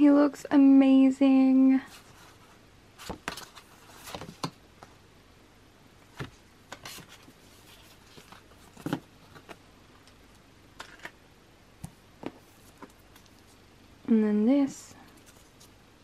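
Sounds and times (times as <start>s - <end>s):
cards tapping and rustling: 3.0s - 4.6s, 6.2s - 9.6s, 10.8s - 11.2s.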